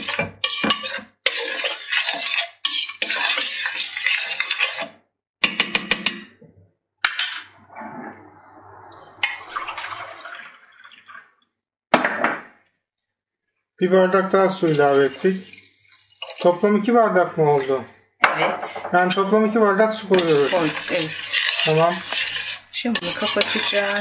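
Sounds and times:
utensil scraping metal pot: 0:00.0 - 0:05.0, 0:14.6 - 0:24.0.

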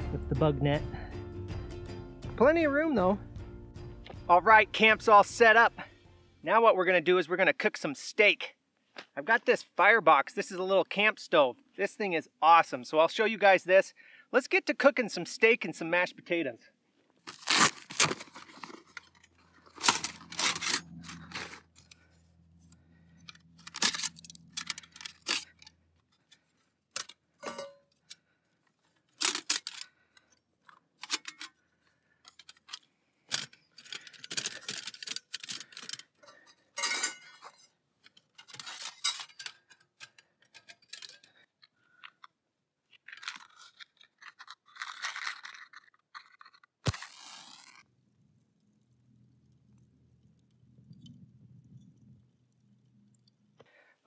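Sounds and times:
fabric pouch rustling: 0:17.2 - 0:22.2, 0:46.9 - 0:47.9
metal panels clicking and scraping: 0:18.1 - 0:22.1, 0:23.2 - 0:28.2, 0:31.0 - 0:31.5, 0:32.3 - 0:41.4.

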